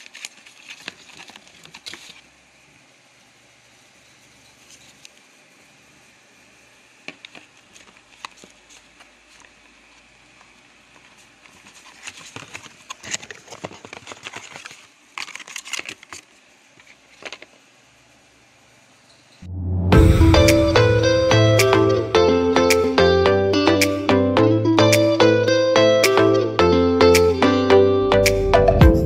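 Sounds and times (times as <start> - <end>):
cardboard rustling and scraping: 0.0 - 2.4, 10.9 - 17.5.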